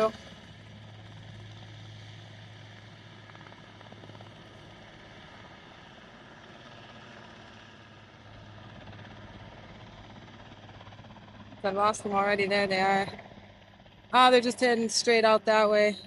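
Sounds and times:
helicopter engine and rotor drone: 0:00.0 - 0:16.0.

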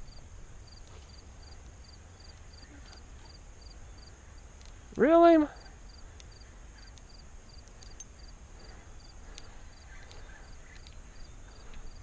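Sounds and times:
cricket chirping: 0:00.0 - 0:12.0
faint clicks: 0:04.5 - 0:05.0, 0:06.1 - 0:12.0.

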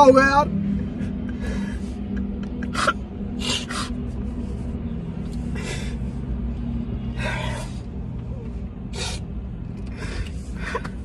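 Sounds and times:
car cabin hum: 0:00.0 - 0:11.0
man sniffing: 0:02.7 - 0:04.7.

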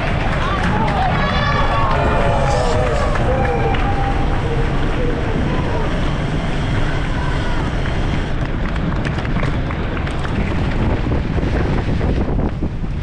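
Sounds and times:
faint voices: 0:00.0 - 0:08.5
bike tyres rolling on pavement: 0:00.0 - 0:13.0
wind buffeting microphone: 0:00.0 - 0:13.0
bike rattling over paving: 0:04.3 - 0:12.6.

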